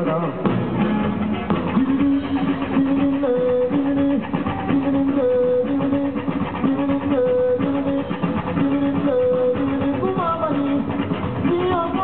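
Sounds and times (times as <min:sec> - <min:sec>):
live blues-rock band: 0:00.0 - 0:12.0
repeating guitar riff: 0:00.0 - 0:12.0
sliding guitar notes: 0:00.0 - 0:12.0.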